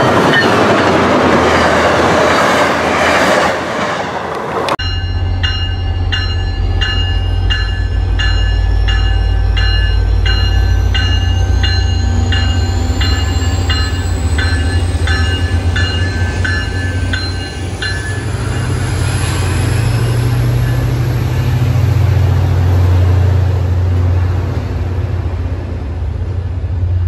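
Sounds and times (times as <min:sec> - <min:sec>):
locomotive bell ringing: 0:00.0 - 0:02.0, 0:04.8 - 0:21.7.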